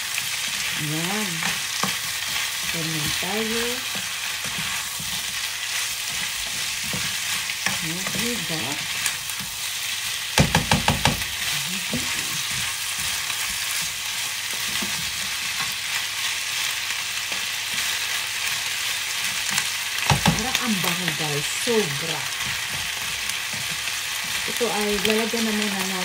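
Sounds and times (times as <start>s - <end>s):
chicken feet sizzling in wok: 0.0s - 26.0s
spatula scraping a pan: 1.4s - 15.8s
spatula knocking on pan: 10.4s - 11.3s, 20.0s - 20.4s.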